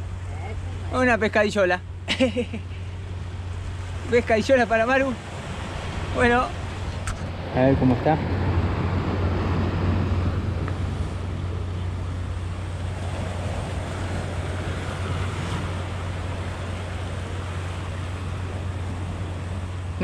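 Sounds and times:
waves against rocks: 0.0s - 20.0s
wind on microphone: 5.2s - 20.0s.

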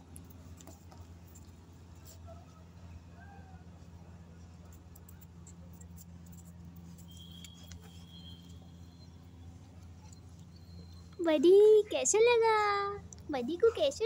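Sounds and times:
steady low hum: 0.0s - 14.0s
high whistle-like tone: 7.0s - 9.4s.

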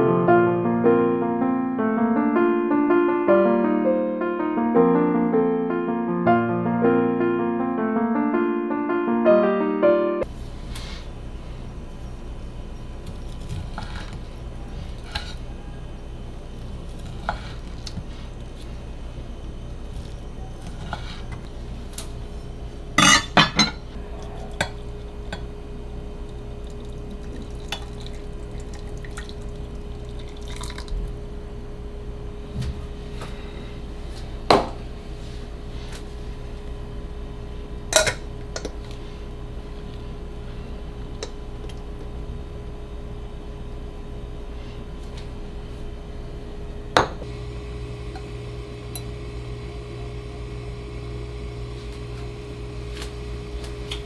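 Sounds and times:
steady low hum: 10.2s - 54.0s
glass teapot and kitchenware clinking: 23.0s - 25.4s, 26.8s - 29.4s.

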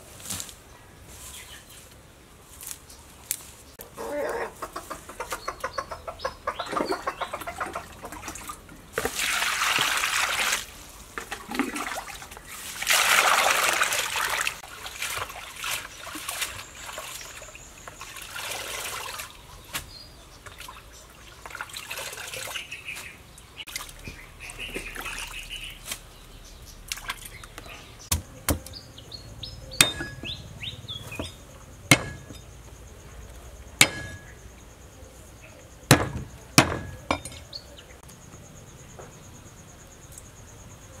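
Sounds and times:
water splashing: 6.6s - 19.4s, 20.5s - 23.0s, 23.6s - 25.9s, 26.9s - 27.5s
cleaver chopping on board: 28.1s - 28.7s, 29.8s - 30.3s, 31.2s - 32.4s, 35.9s - 37.2s.

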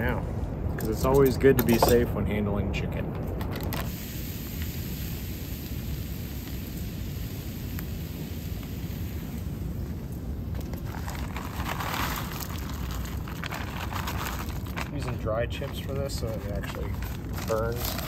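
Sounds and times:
steady low rumble: 0.0s - 18.0s
wood chips pouring onto charcoal: 10.5s - 18.0s.

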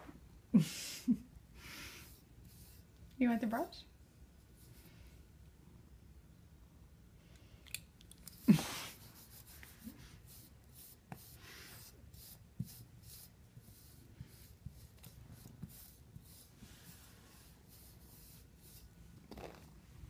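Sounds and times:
brush scratching through fur: 8.4s - 19.6s.

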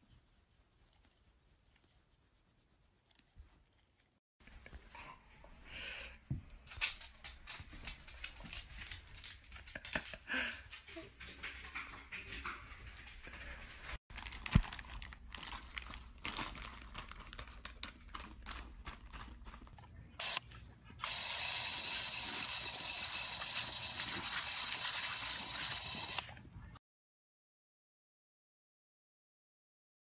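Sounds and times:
plastic bag crinkling: 14.1s - 19.8s
garden hose spraying water: 20.2s - 20.4s, 21.0s - 26.3s.

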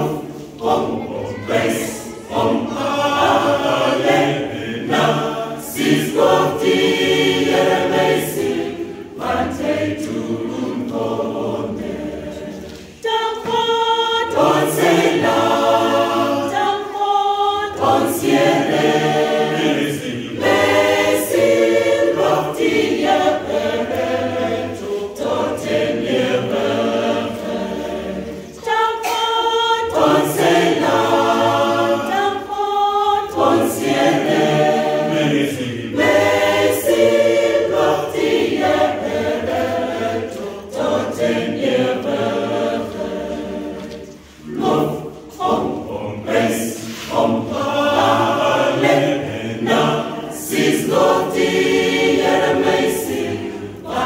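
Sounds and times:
church choir singing: 0.0s - 54.0s.

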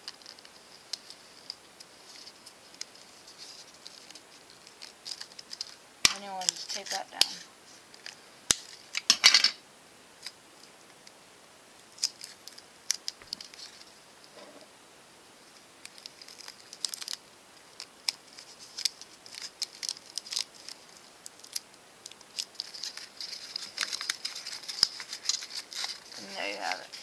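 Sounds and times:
paper rustling: 0.0s - 9.0s, 15.8s - 27.0s
tape crinkling and clicking: 0.0s - 9.3s, 10.2s - 11.2s, 11.8s - 14.3s, 15.6s - 27.0s.

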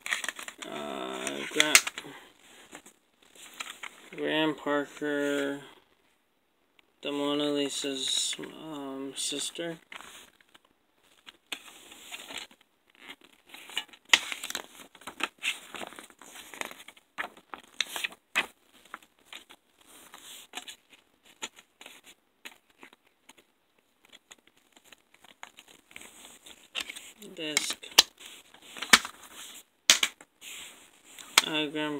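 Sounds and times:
plastic case clicking and scraping: 0.0s - 2.1s, 24.1s - 29.3s, 29.9s - 30.2s
paper booklet rustling: 0.0s - 4.1s, 13.2s - 31.9s.

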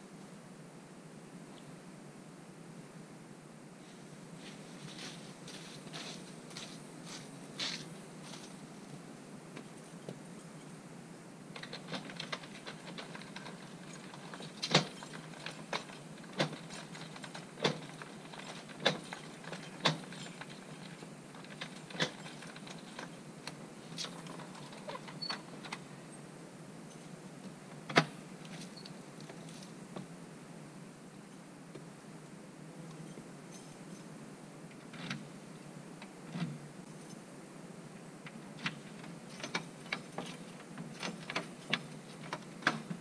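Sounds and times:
keys jangling: 11.6s - 23.2s.

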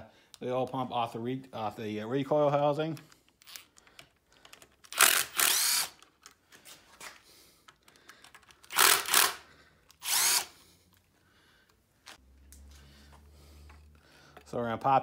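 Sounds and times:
cordless driver motor whine: 5.0s - 5.9s, 10.0s - 10.5s.

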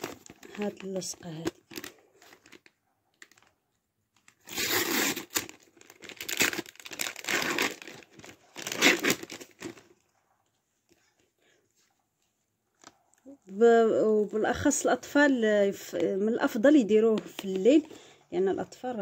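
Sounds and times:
plastic packaging crinkling and tearing: 0.0s - 10.1s, 17.1s - 18.0s.

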